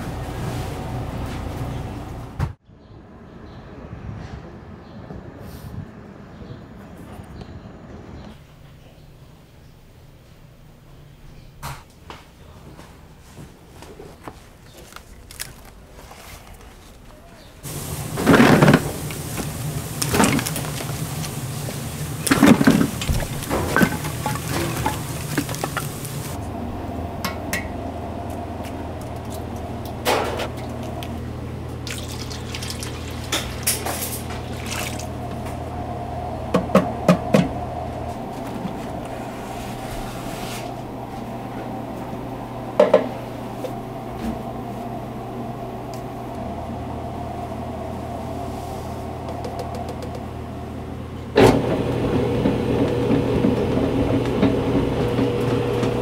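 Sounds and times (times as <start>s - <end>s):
dough mixer running: 17.6s - 41.6s, 49.0s - 56.0s
low hum: 17.6s - 56.0s
liquid pouring into steel bowl: 31.8s - 35.3s.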